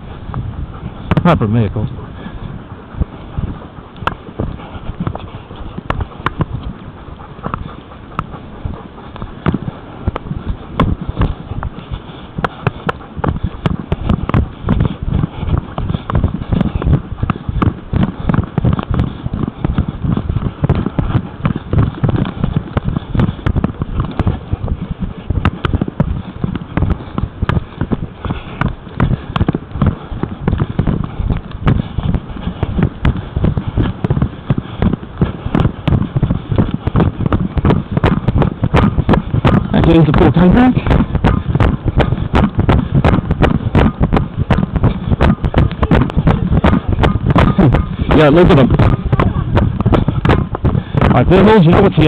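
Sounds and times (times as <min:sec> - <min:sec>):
camera thumps and clicks: 0:09.2 - 0:11.8, 0:40.8 - 0:51.2.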